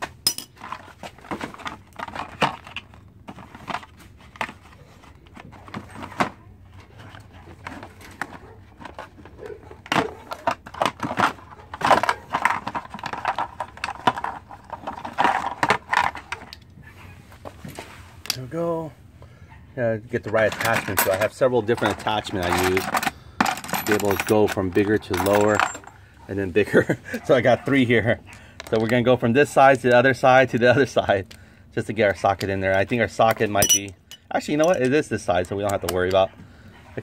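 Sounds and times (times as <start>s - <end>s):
tools rattling in metal toolbox: 0.0s - 3.9s, 7.0s - 16.5s, 20.2s - 26.0s, 33.1s - 36.3s
plastic case being opened: 0.6s - 16.6s.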